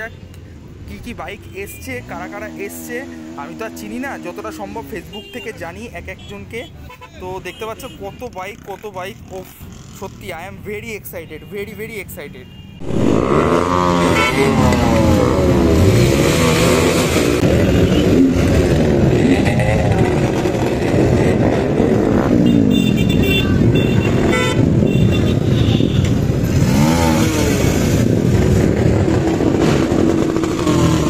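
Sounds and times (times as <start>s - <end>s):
motorcycle engines revving: 0.0s - 31.0s
horn beeps: 11.2s - 15.3s, 17.4s - 18.4s, 22.2s - 26.9s.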